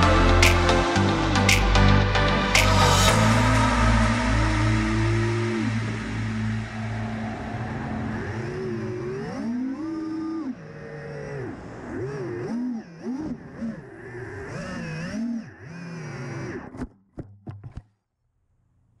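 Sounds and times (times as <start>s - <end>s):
drone motors whining: 3.1s - 16.9s.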